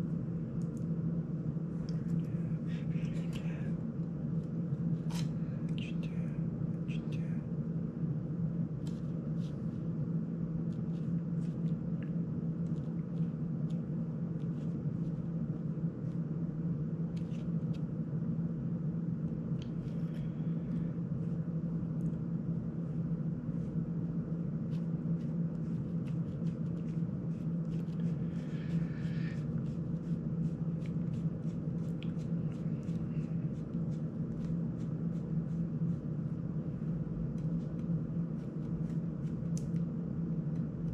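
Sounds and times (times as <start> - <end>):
steady low hum: 0.0 - 40.9.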